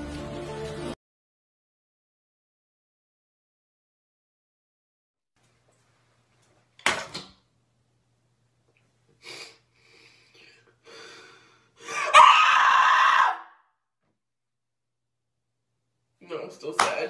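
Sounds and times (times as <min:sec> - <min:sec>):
loud vocal outburst: 0:11.8 - 0:13.6.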